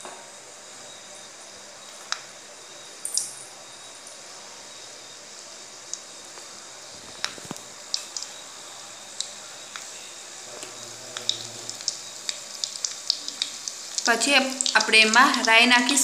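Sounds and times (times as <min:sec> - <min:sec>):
garlic sizzling in hot oil: 0:00.3 - 0:16.0
oil spitting pops: 0:10.6 - 0:14.1.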